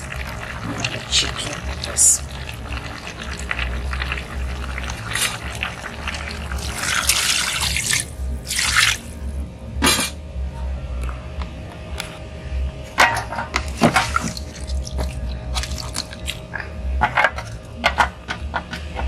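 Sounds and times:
water pouring and splashing into pot: 0:00.0 - 0:09.1, 0:13.8 - 0:16.4.

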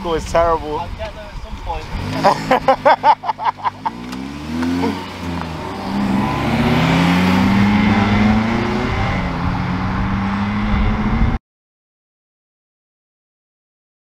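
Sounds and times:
cars accelerating: 0:01.6 - 0:11.4.

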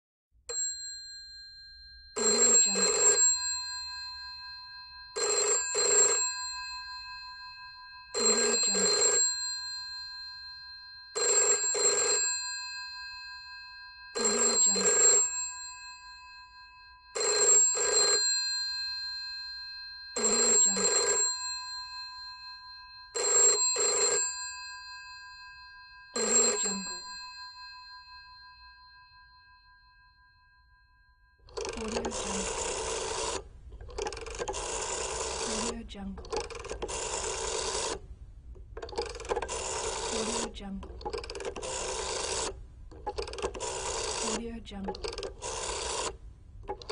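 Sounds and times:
telephone bell ringing: 0:00.5 - 0:38.0, 0:39.0 - 0:46.9.

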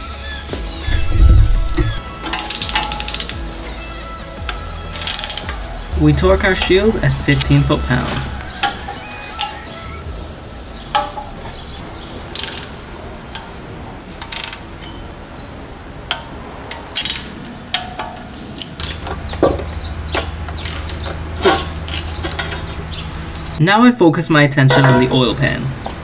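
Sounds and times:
steady low hum: 0:00.8 - 0:02.2, 0:03.3 - 0:09.1
torque wrench ratcheting: 0:01.0 - 0:03.5, 0:04.9 - 0:05.8, 0:12.3 - 0:12.8, 0:14.2 - 0:14.7, 0:17.0 - 0:17.4, 0:20.6 - 0:22.4
metal knocks: 0:10.9 - 0:11.6, 0:17.7 - 0:22.8.

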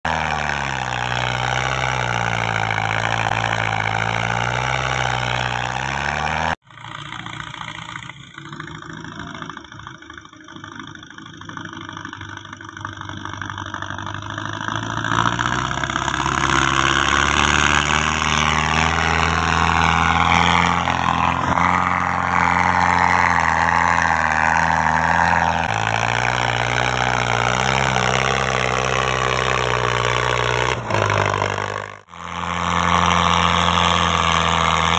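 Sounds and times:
tractor diesel engine labouring: 0:00.0 - 0:34.9.

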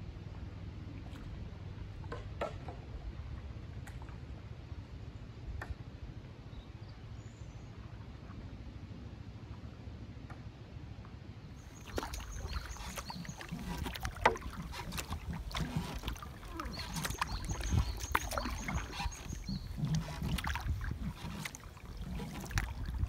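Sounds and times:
paddle knocking against hull: 0:11.6 - 0:23.0
paddle splashing in water: 0:11.6 - 0:23.0
water drips: 0:11.6 - 0:23.0.

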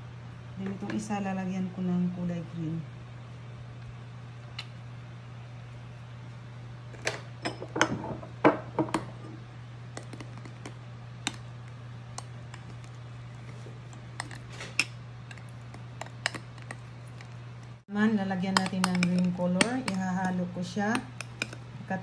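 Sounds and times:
utensil tapping ceramic dish: 0:18.4 - 0:21.6.

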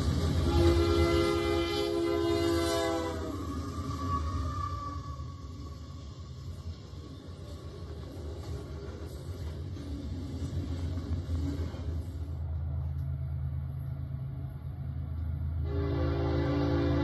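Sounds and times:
train rumbling past: 0:00.0 - 0:17.0
train horn chord: 0:00.4 - 0:03.5, 0:15.6 - 0:17.0.

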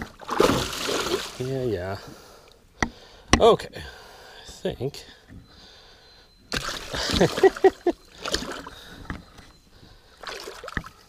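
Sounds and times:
fish splashing in water: 0:00.0 - 0:01.4, 0:06.5 - 0:08.7, 0:10.2 - 0:11.0.

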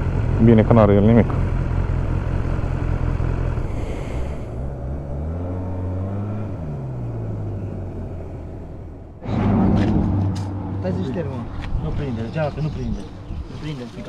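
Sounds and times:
engine idling: 0:00.0 - 0:05.1
engine revving: 0:00.0 - 0:12.5.

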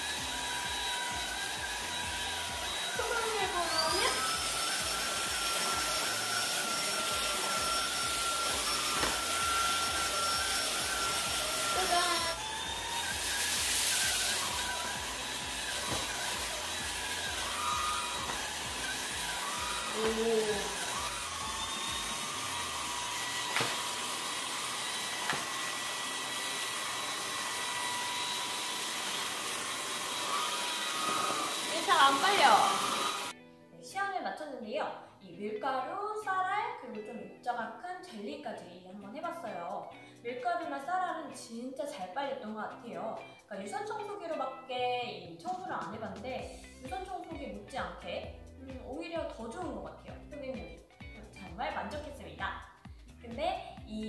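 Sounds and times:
vacuum cleaner motor whine: 0:00.0 - 0:33.4.

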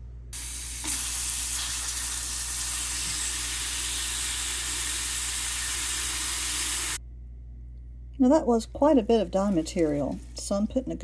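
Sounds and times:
faucet spray hissing: 0:00.4 - 0:07.0.

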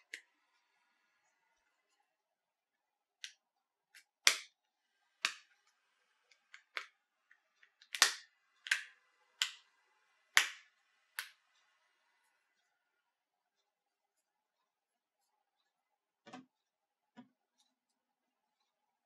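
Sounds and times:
plastic clips snapping free: 0:07.8 - 0:09.6.

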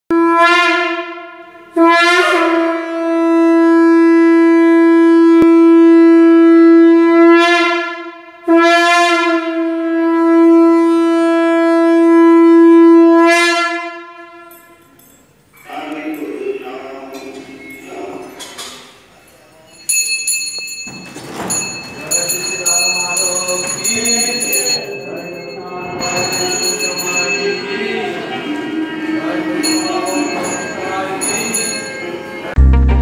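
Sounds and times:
conch shell blasts: 0:00.1 - 0:15.0.

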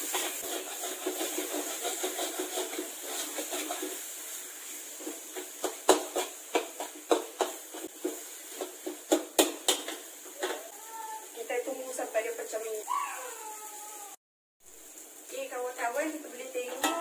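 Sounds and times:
spatula scraping metal wok: 0:00.0 - 0:10.7
paste frying in oil: 0:00.0 - 0:17.0
spatula knocking on wok: 0:05.0 - 0:10.7.

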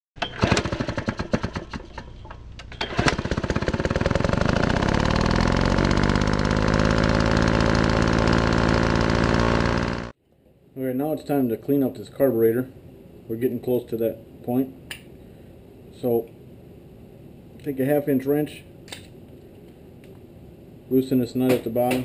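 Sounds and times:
engine sputtering and running: 0:00.2 - 0:02.2, 0:02.8 - 0:10.2.

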